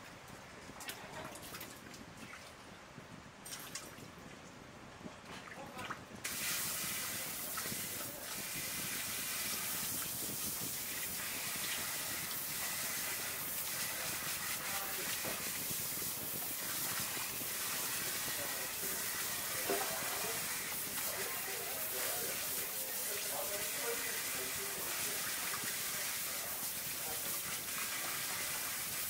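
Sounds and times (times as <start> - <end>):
tap water splashing into metal bowl: 19.6 - 20.3.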